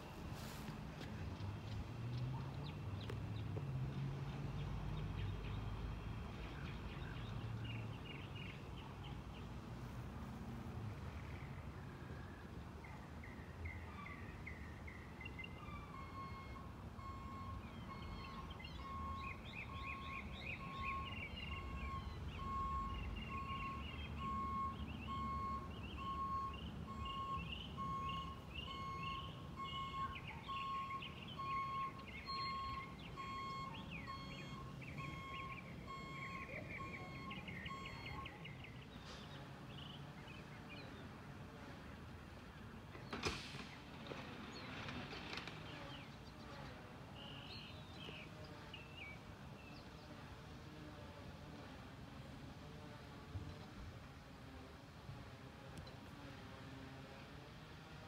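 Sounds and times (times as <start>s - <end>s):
truck reversing alarm beeping: 14.8s - 38.8s
birds chirping: 17.2s - 41.1s.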